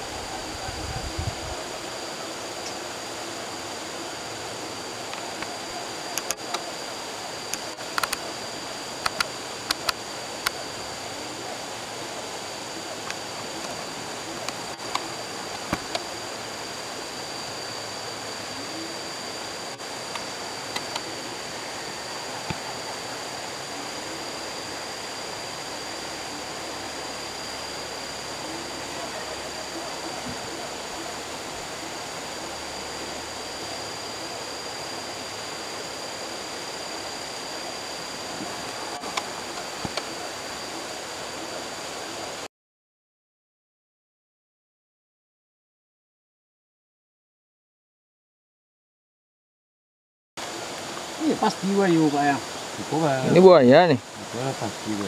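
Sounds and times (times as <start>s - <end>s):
high thin whine: 0.0s - 42.5s, 50.4s - 55.0s
sharp clicks: 6.2s - 6.6s, 7.5s - 8.2s, 9.0s - 10.6s, 20.1s - 21.1s.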